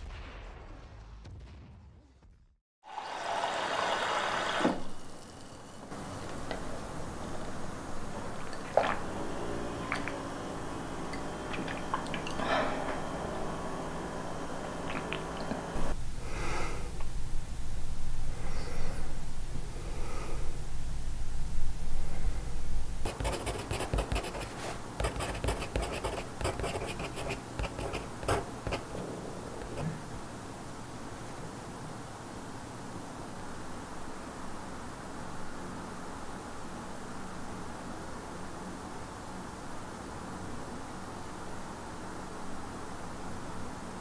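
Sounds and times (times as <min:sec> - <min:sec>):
low steady hum: 0:04.8 - 0:37.6
person sipping from mug: 0:05.9 - 0:16.0
slurps or swallows: 0:08.2 - 0:13.6, 0:14.8 - 0:15.7
pencil scratching on paper: 0:23.0 - 0:28.9.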